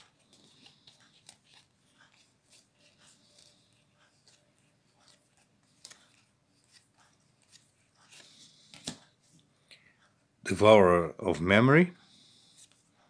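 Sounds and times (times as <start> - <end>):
cards sliding and clicking: 0.0 - 9.4.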